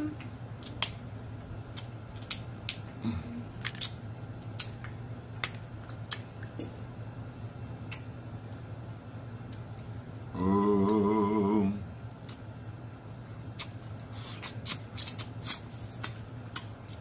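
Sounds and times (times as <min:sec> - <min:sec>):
steady low hum: 0:00.0 - 0:17.0
shrimp shells cracking: 0:03.6 - 0:04.0.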